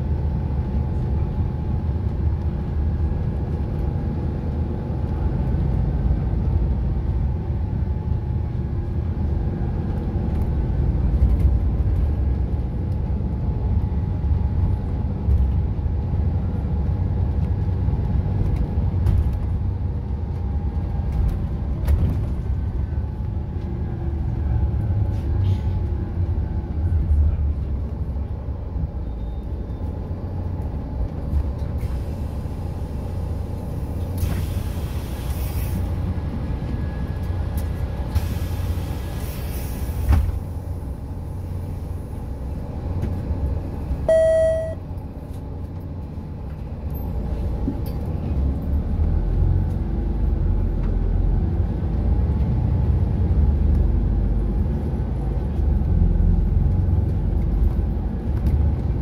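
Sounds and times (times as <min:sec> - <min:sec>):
bus diesel engine rumble: 0:00.0 - 0:59.0
short electronic beep: 0:44.1 - 0:44.8.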